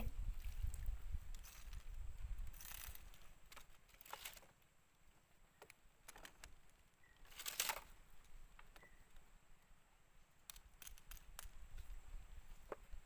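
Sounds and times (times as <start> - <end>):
fishing line rustling: 0.2 - 4.6, 7.2 - 8.0
small reel clicks: 2.5 - 4.4.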